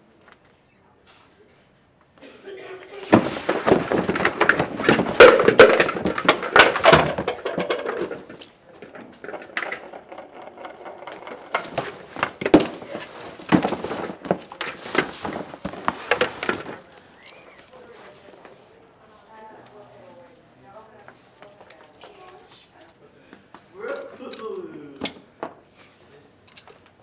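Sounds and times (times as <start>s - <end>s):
rummaging in cardboard box: 2.9s - 8.4s, 10.8s - 17.0s
items dropped on wooden floor: 2.9s - 17.0s.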